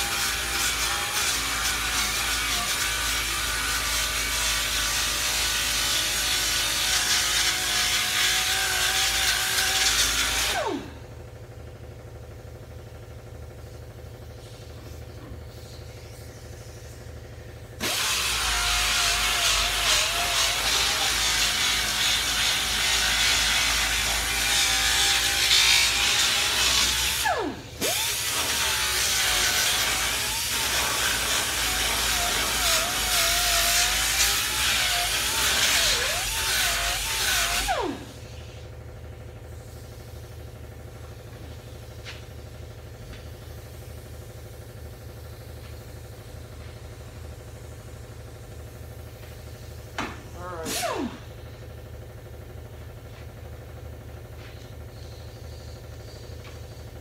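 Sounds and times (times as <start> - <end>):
angle grinder grinding metal: 0.0 - 10.9, 17.8 - 38.6, 50.3 - 51.3
grinder winding down: 0.0 - 11.2, 17.7 - 39.2, 50.3 - 52.0
low shop hum: 0.0 - 57.0.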